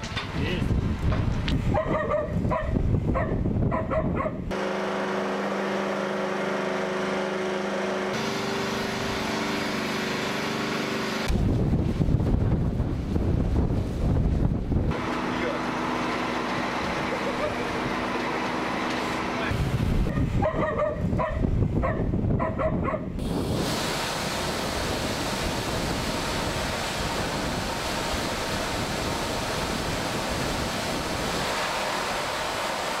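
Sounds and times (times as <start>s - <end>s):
wind rushing over microphone: 0.0s - 4.5s, 11.3s - 15.0s, 19.5s - 32.8s
machinery humming: 4.5s - 11.6s, 14.8s - 20.1s, 23.2s - 33.0s.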